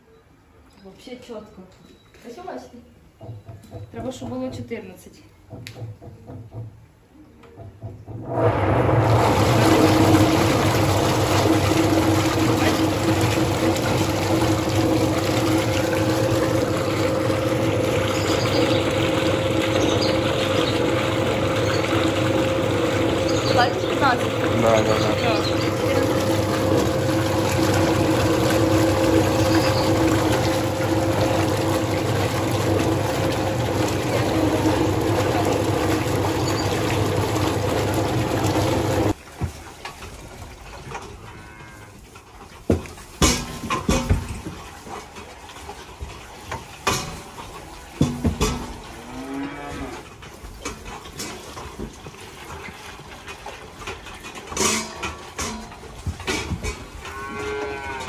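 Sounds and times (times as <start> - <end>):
stirrer motor humming: 7.6 - 39.2
metal bowls clanking: 9.0 - 37.4, 53.8 - 58.0
calves mooing: 41.2 - 42.0, 48.8 - 50.1, 57.0 - 58.0.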